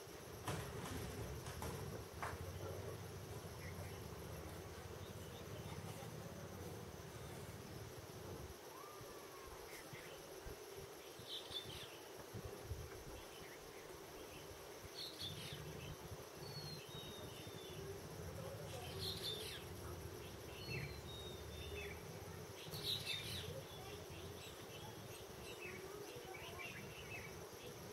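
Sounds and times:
high insect drone: 0.0s - 27.9s
thin descending bird whistles: 8.7s - 10.2s.

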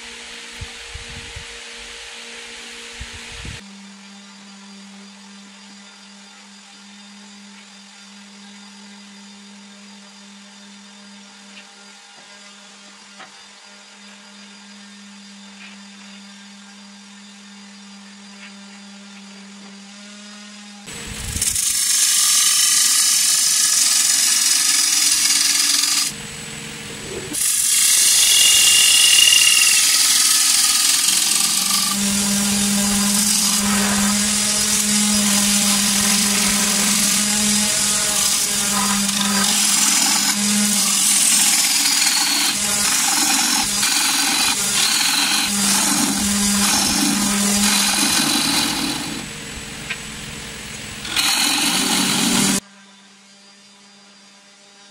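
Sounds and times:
wood lathe humming: 20.9s - 52.6s
gouge scraping spinning wood: 21.0s - 52.6s.

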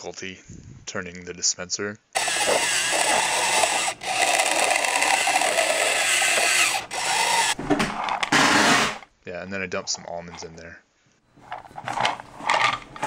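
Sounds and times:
small servo motor whirring: 2.2s - 7.6s.

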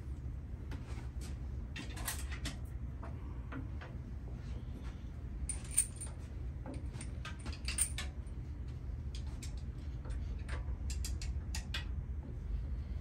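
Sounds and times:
steady low hum: 0.0s - 13.0s
metallic clicks of tools: 10.4s - 11.9s.

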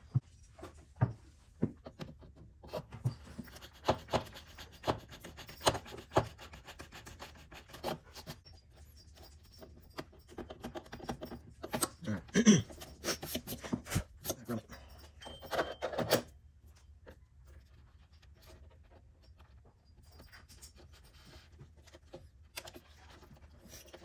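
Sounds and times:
hand tool scraping a hole: 2.1s - 14.7s.

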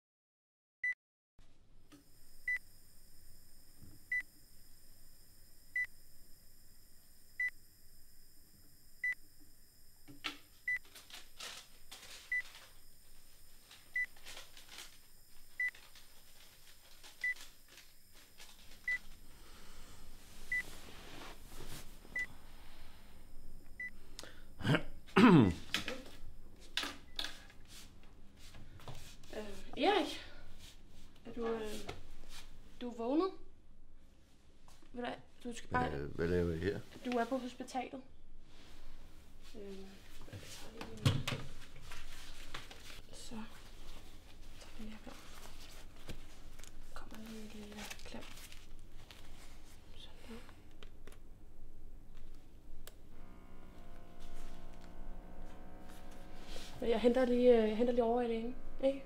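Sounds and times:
heart monitor beeping: 2.0s - 27.4s.

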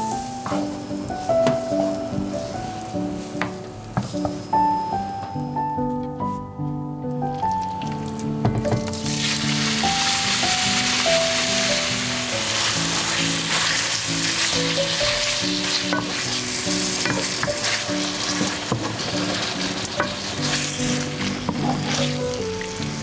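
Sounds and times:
chicken sizzling in butter: 0.0s - 5.0s, 7.4s - 23.0s
soft background music: 0.0s - 23.0s
spatula scraping a pan: 15.1s - 22.2s.

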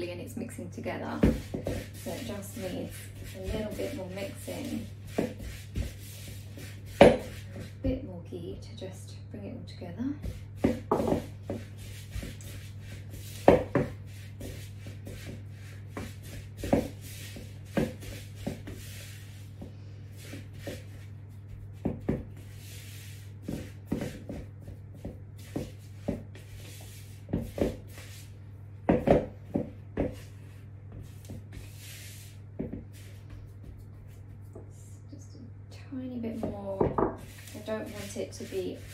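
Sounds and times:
steady low hum: 0.0s - 38.9s
spatula scraping a mixing bowl: 1.2s - 7.9s, 36.2s - 38.9s.

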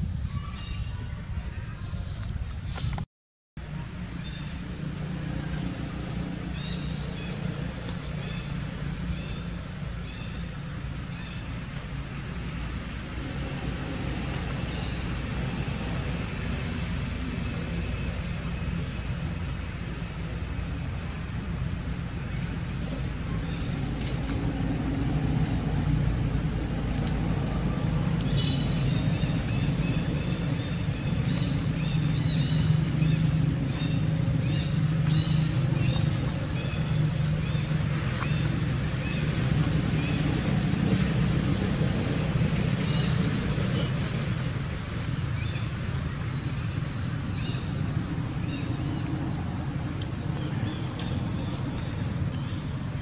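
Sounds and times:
traffic engine rumble: 0.0s - 53.0s.

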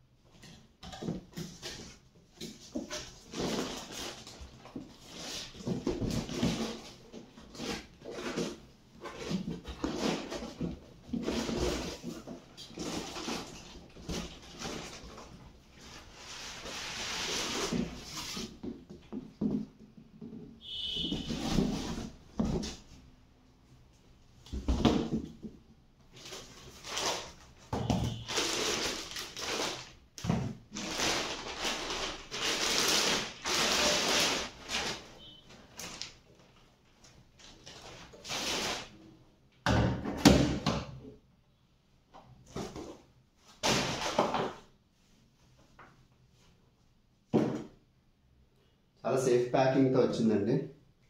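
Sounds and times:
cardboard and foam handled: 0.4s - 23.1s
plastic bag rustling: 9.2s - 18.5s, 26.1s - 36.5s.

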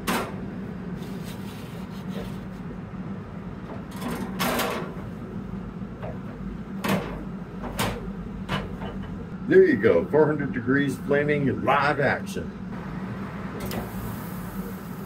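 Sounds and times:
grill humming: 0.0s - 15.0s.

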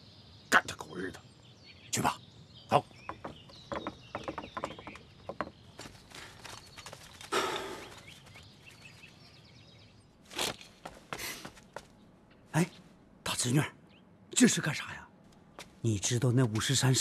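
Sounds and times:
birds chirping: 0.0s - 17.0s
footsteps: 10.3s - 12.0s.

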